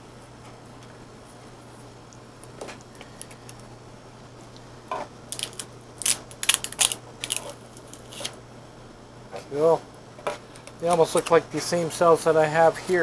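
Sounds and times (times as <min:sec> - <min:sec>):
steady low hum: 0:00.0 - 0:13.0
plastic wrap crinkling: 0:05.3 - 0:08.4.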